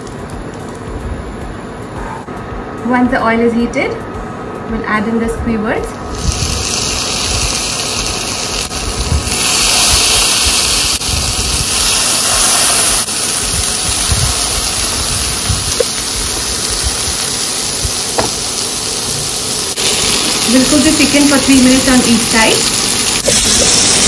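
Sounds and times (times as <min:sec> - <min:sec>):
skewers sizzling in oil: 0:06.1 - 0:24.0.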